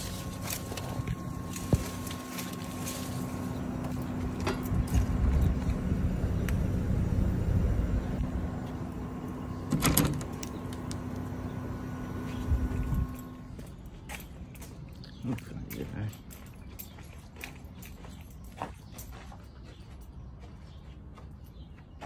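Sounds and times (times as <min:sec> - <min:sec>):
heat pump humming: 0:00.0 - 0:16.0.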